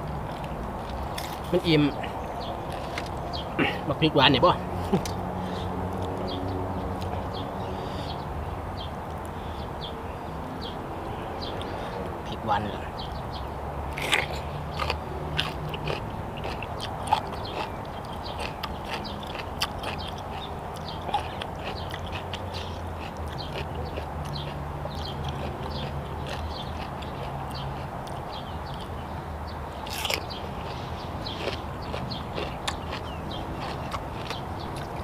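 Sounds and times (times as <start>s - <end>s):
man chewing and lip-smacking: 0.1s - 1.6s, 2.2s - 3.6s, 5.9s - 6.3s, 13.8s - 29.0s, 29.8s - 35.0s.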